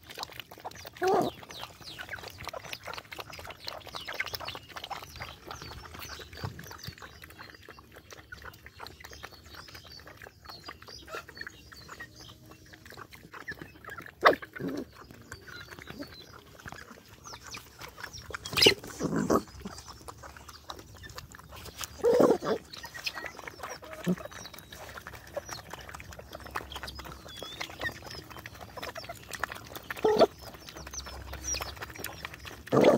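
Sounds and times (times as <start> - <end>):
dogs chewing and lapping: 0.0 - 32.9.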